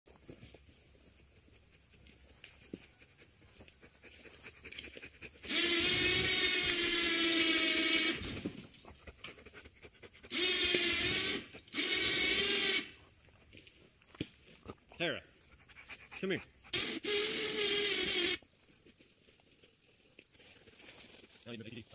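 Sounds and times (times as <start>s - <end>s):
small electric motor whining: 5.4s - 8.5s, 10.3s - 13.0s, 16.7s - 18.4s.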